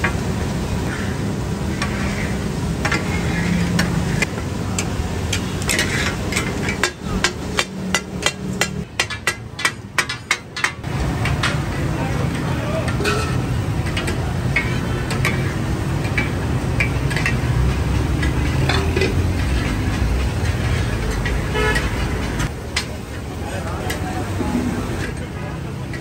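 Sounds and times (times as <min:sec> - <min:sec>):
meat sizzling on griddle: 0:00.0 - 0:08.4
metal blades clanging on griddle: 0:00.8 - 0:23.0.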